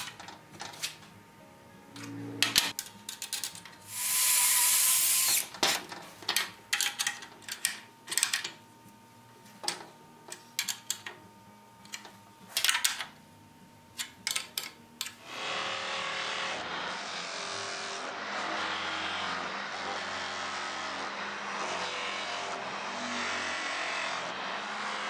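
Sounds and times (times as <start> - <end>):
cordless drill running: 3.9 - 5.5.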